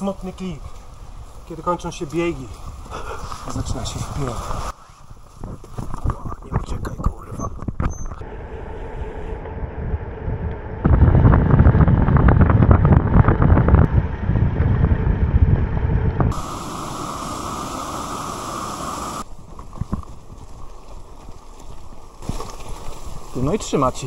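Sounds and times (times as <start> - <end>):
steady hiss: 0.0 - 5.1, 16.3 - 19.3
wind buffeting microphone: 0.4 - 22.0.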